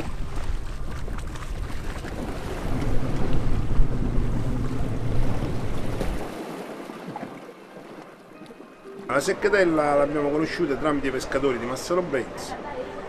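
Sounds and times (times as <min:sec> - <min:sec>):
wind buffeting microphone: 0:00.0 - 0:07.9
choppy water against hull: 0:00.0 - 0:12.7.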